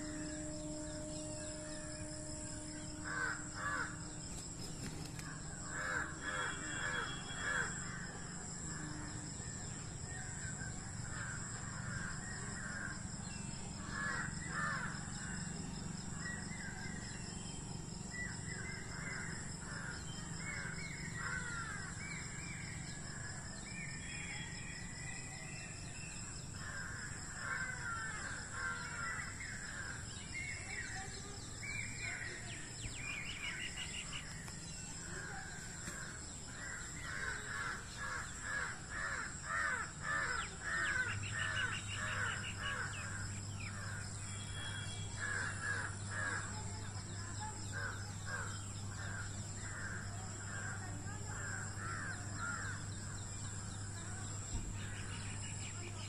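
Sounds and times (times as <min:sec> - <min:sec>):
low hum: 0:00.0 - 0:05.8
steady high-pitched whine: 0:00.0 - 0:56.0
birds making harsh crow-like calls: 0:02.9 - 0:08.1, 0:13.8 - 0:15.4, 0:19.2 - 0:22.0.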